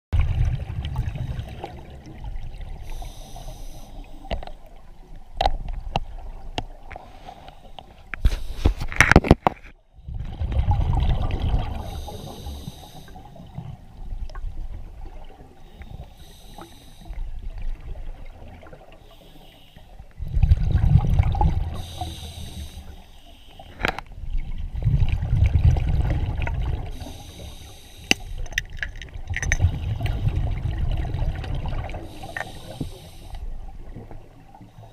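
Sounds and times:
exhaled bubbles gushing: 0.2 - 3.0, 10.0 - 12.7, 20.2 - 22.0, 24.2 - 27.4, 28.3 - 32.8
hissing regulator inhales: 2.8 - 4.3, 11.8 - 13.5, 15.7 - 17.2, 19.0 - 20.0, 21.8 - 23.9, 26.9 - 28.6, 32.0 - 33.5
sharp clicks and knocks: 28.1 - 29.7.

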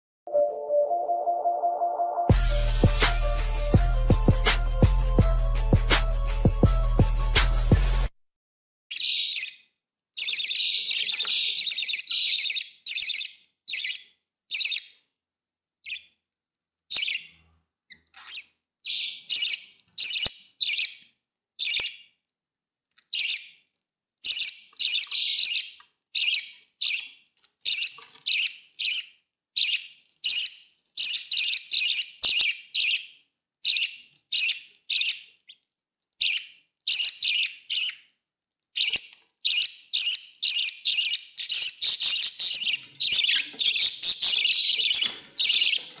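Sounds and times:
budgerigar chirping: 8.9 - 15.0, 15.8 - 16.2, 16.9 - 21.0, 21.6 - 22.1, 23.1 - 23.6, 24.2 - 35.6, 36.2 - 38.1, 38.8 - 46.0.

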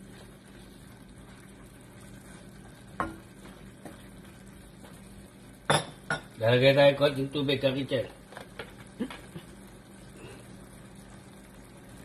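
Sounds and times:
wooden spatula stirring: 0.0 - 5.2
food sizzling in a wok: 0.0 - 12.0.

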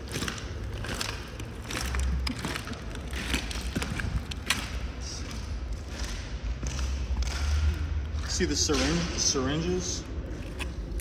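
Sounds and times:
footsteps on loose ballast stones: 0.0 - 7.4.

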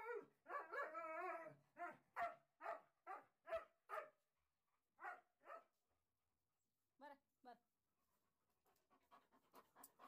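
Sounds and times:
dog barking: 1.8 - 4.2, 5.0 - 5.7.

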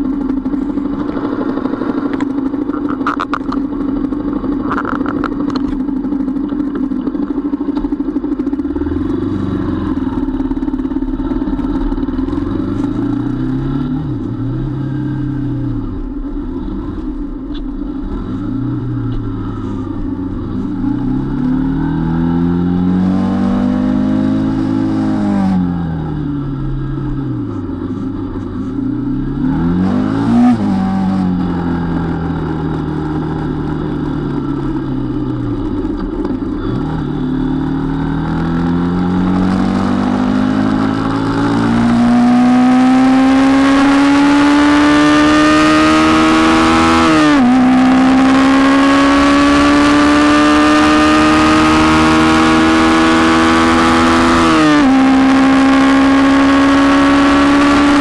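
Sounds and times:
small motorcycle engine revving: 18.1 - 58.0.

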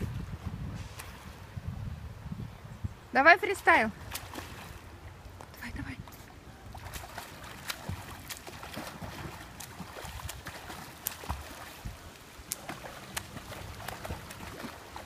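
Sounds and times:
water splashing from swimming: 3.5 - 15.0.

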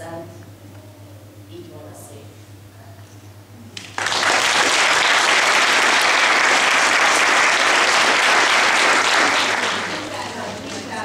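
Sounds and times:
audience applauding: 3.8 - 11.0.

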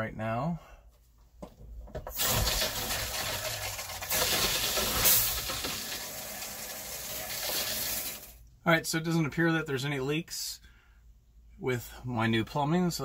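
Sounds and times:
water rushing into pipes: 2.2 - 8.4.

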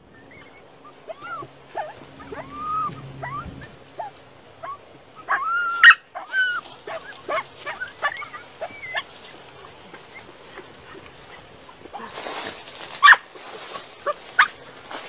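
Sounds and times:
dog whining and yelping: 0.2 - 9.1.

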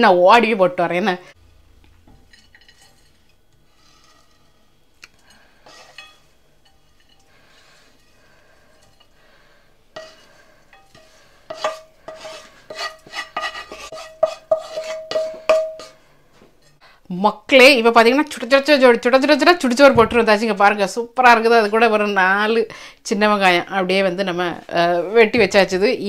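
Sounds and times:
wooden spatula scraping a pan: 2.1 - 16.8
ringing taps on a pan: 15.0 - 15.9.

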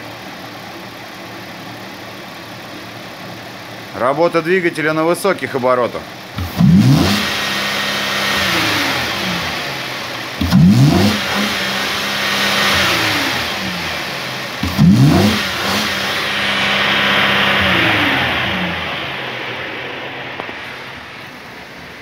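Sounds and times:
car engine revving: 6.0 - 22.0.

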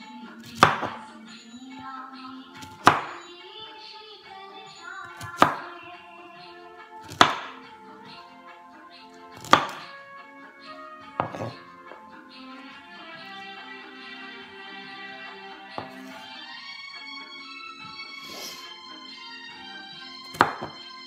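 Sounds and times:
background music sustained tones: 0.0 - 21.0
knife chopping on wooden board: 0.4 - 1.0, 2.6 - 3.2, 5.2 - 5.7, 7.0 - 7.6, 9.4 - 9.9, 11.1 - 11.7, 15.8 - 16.2, 20.3 - 20.8.

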